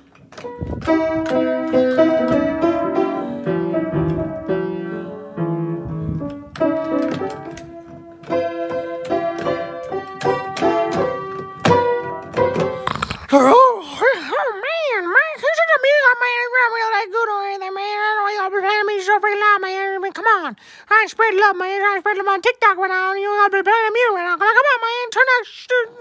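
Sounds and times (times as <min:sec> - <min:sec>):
piano notes and chords: 0:00.0 - 0:13.2.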